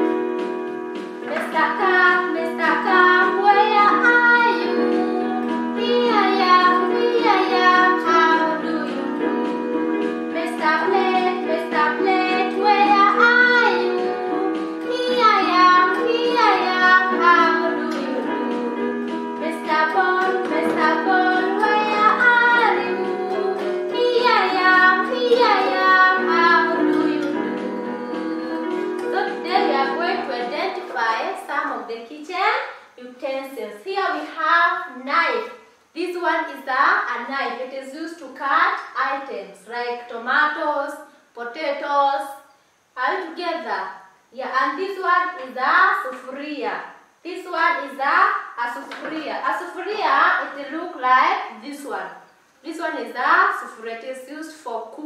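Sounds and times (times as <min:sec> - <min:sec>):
instrumental backing music: 0:00.0 - 0:31.3
held accompaniment chords: 0:00.0 - 0:31.4
children singing: 0:10.6 - 0:30.6.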